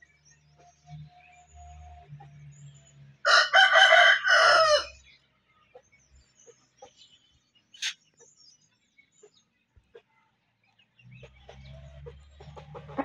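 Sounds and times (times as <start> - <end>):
rooster crowing: 3.3 - 5.0.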